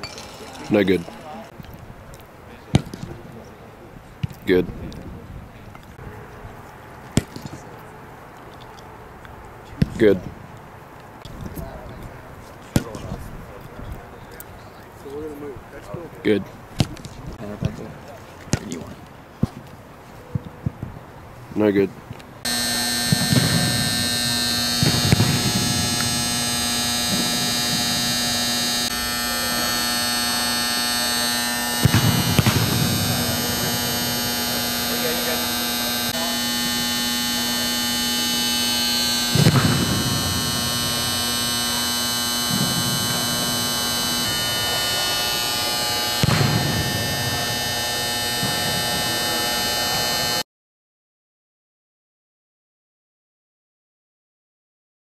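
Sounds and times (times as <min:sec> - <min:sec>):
echoing football kick thuds: 0:02.7 - 0:03.2, 0:07.1 - 0:07.6, 0:09.8 - 0:10.0, 0:12.7 - 0:13.2, 0:18.5 - 0:19.6, 0:22.5 - 0:49.2
electrical hum: 0:22.4 - 0:50.4.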